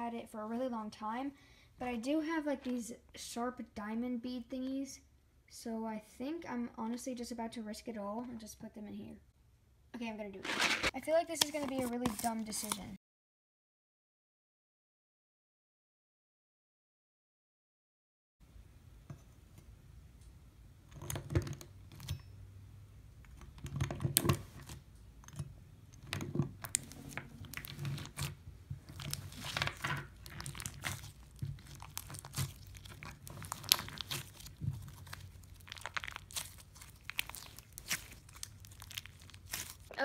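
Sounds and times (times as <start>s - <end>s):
slime crackling and popping: 26.6s - 40.0s.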